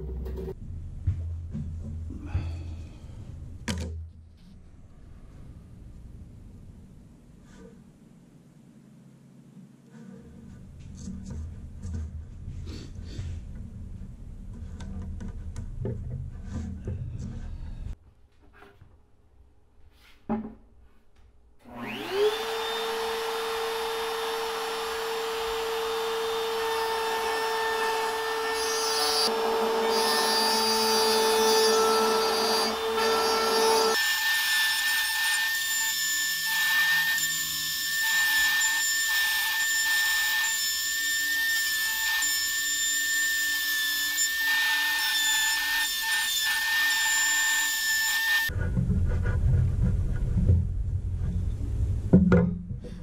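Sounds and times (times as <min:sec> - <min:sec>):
router whining while cutting wood: 0:21.6 - 0:48.5.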